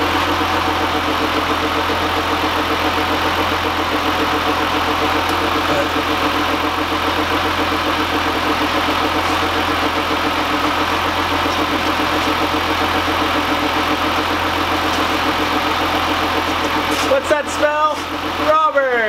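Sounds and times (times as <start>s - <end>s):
car engine idling with pulsing: 0.0s - 19.0s.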